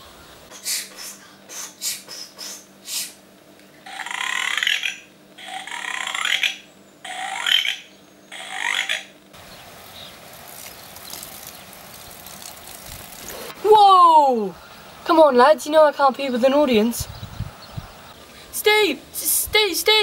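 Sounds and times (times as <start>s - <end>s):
raspy rising creature calls: 3.8s - 9.1s.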